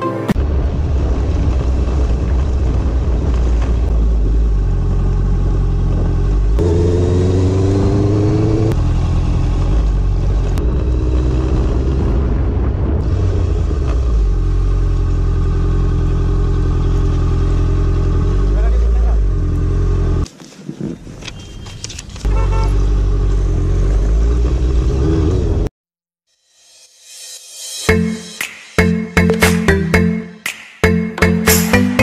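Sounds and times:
motorcycle engine running: 13.4s - 20.2s.

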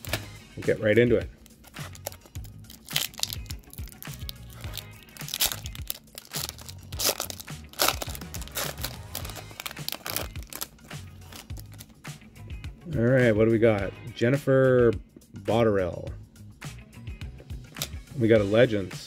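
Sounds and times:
quiet background music: 0.0s - 19.0s
foil wrapper crinkling: 1.7s - 11.9s.

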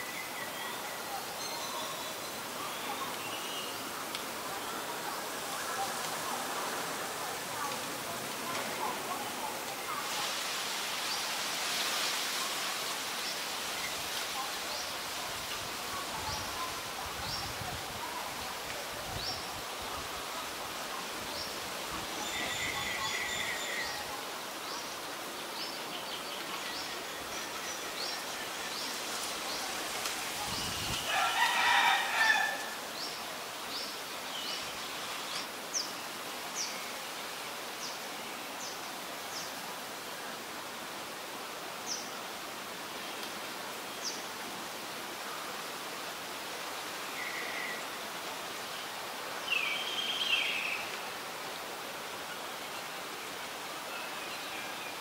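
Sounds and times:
outdoor hiss: 0.0s - 55.0s
rooster crowing: 31.0s - 32.8s.

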